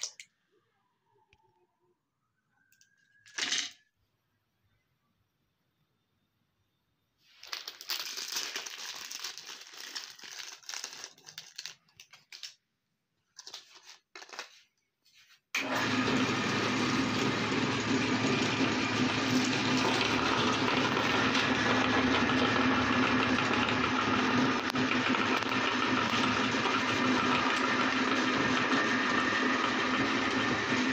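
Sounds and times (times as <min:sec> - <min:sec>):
rustling and handling noises: 0:07.2 - 0:15.5
meat grinder motor humming: 0:15.6 - 0:30.9.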